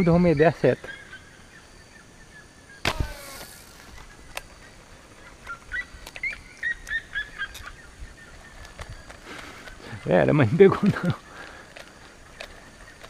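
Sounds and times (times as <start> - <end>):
slingshot bands snapping: 2.8 - 4.5
fishing reel whirring: 2.9 - 4.0.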